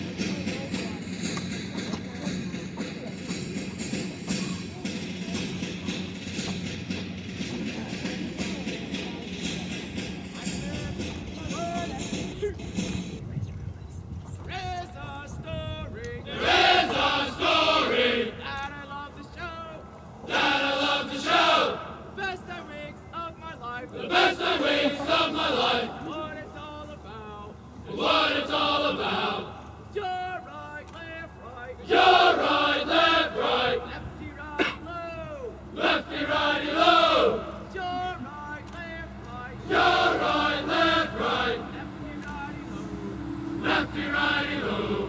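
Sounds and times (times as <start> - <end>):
lead voice singing: 15.6 - 18.7, 19.4 - 30.4, 35.7 - 43.0, 43.6 - 45.0
group chanting marching cadence: 16.2 - 18.8, 19.5 - 45.0
group answering in unison: 24.0 - 26.2.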